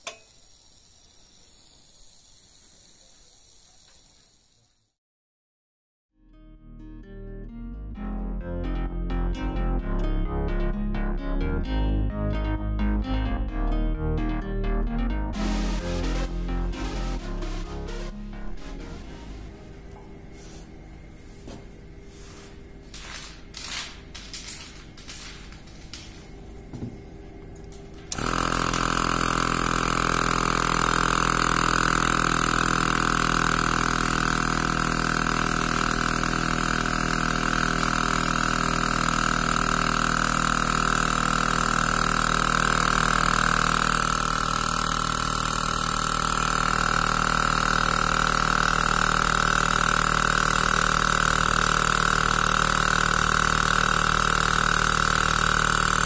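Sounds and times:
air compressor running: 0:15.4 - 0:56.0.

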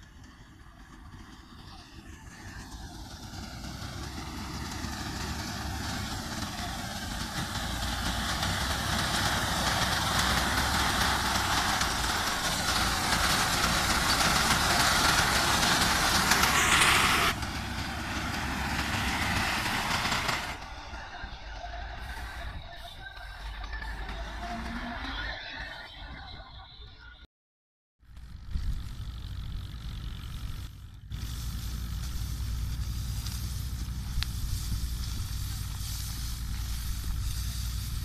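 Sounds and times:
tractor diesel engine: 0:00.0 - 0:26.8, 0:28.0 - 0:38.0
reaper cutting wheat: 0:03.0 - 0:20.7, 0:28.2 - 0:38.0.

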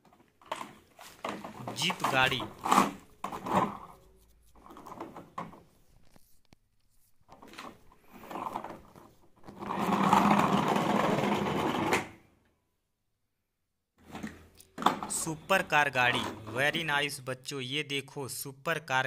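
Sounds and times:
toy car rolling on wooden board: 0:07.4 - 0:12.2.

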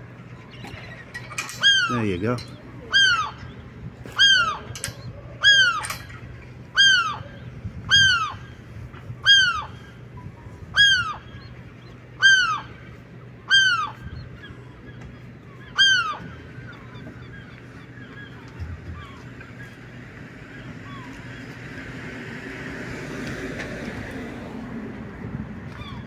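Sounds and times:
gull calling: 0:00.5 - 0:06.1, 0:06.7 - 0:08.6, 0:09.2 - 0:10.1, 0:10.7 - 0:11.6, 0:12.2 - 0:12.8, 0:13.4 - 0:19.8, 0:20.6 - 0:21.5.

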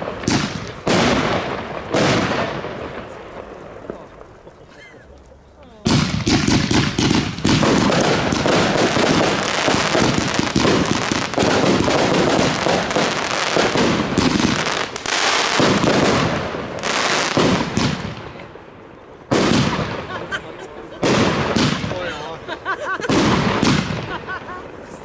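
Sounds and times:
fireworks firing rapid volley: 0:00.0 - 0:04.4, 0:05.8 - 0:18.7, 0:19.3 - 0:25.0.

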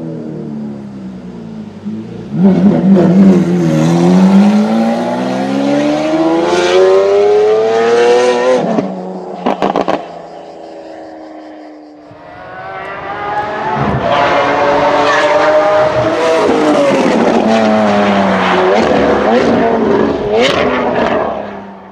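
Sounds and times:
sports car accelerating: 0:00.0 - 0:21.9
exhaust cracks and pops: 0:09.4 - 0:10.1.

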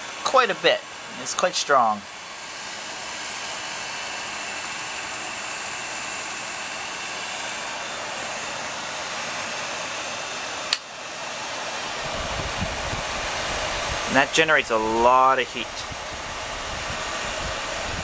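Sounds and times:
film projector running: 0:00.0 - 0:18.0
sharp click: 0:10.7 - 0:10.9.

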